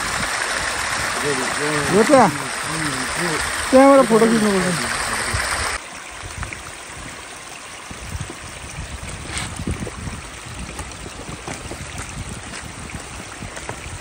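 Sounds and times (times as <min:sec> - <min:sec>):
stream running over rocks: 0:00.0 - 0:14.0
faint footsteps on rock: 0:10.7 - 0:13.9.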